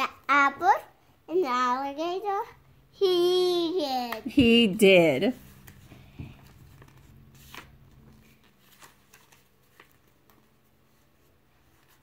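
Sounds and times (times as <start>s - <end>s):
book pages turning: 5.4s - 12.0s.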